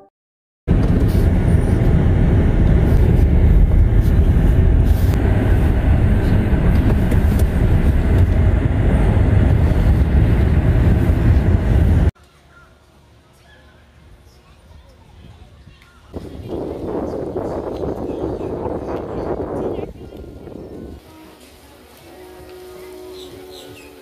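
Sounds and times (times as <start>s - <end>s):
vehicle rumble and road noise: 0.7s - 21.0s.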